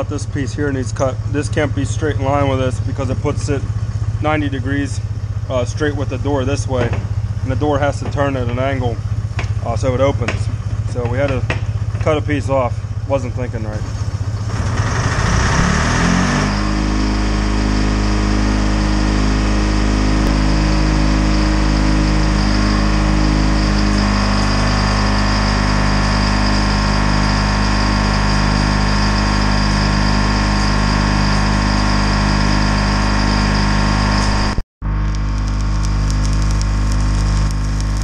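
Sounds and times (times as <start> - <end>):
diesel engines running: 0.0 - 38.0
arc welding crackle: 35.0 - 38.0.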